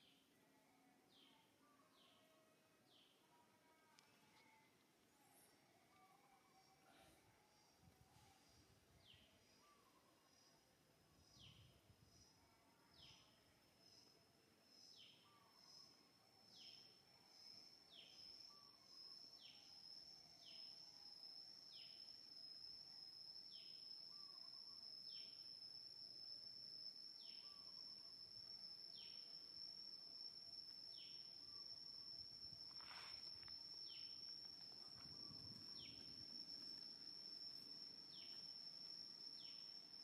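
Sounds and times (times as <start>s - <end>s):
high-pitched insect drone: 11.2s - 40.0s.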